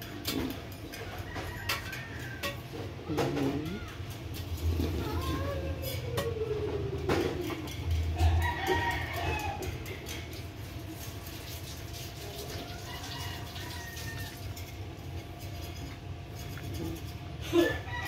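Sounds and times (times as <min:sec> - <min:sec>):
rooster crowing: 0:01.0 - 0:02.7, 0:08.2 - 0:10.0, 0:12.6 - 0:14.7, 0:17.5 - 0:18.0.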